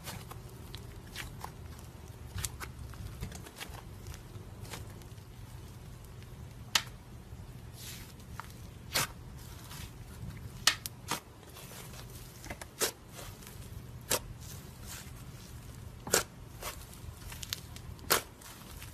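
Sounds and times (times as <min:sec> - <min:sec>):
low steady hum: 0:00.0 - 0:18.9.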